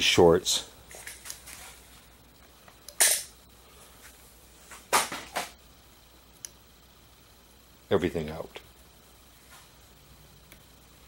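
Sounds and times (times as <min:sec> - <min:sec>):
sharp electrical snaps: 0:02.8 - 0:03.4, 0:04.7 - 0:05.6.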